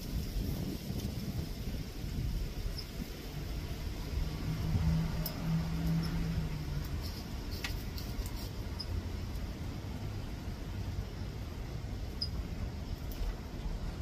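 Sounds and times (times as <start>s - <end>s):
low steady rumble: 0.0s - 14.0s
knife scraping bark: 5.2s - 8.8s.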